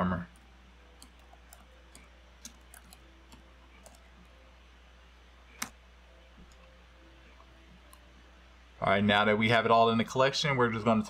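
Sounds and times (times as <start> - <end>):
computer keyboard keystrokes: 1.0 - 4.0, 5.6 - 5.8.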